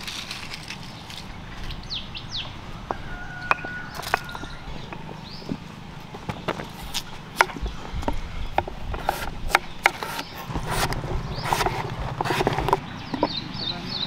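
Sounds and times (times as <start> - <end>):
knives chopping on wooden board: 6.3 - 13.3.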